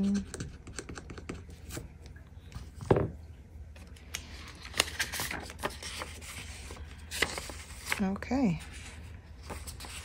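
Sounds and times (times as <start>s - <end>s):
paper and plastic rustling: 3.8s - 10.0s.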